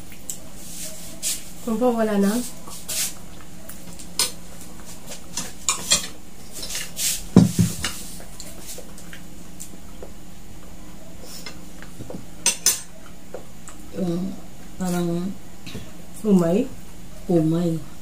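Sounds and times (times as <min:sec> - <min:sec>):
cutlery clinking on plates: 0:05.3 - 0:06.8, 0:12.4 - 0:12.9.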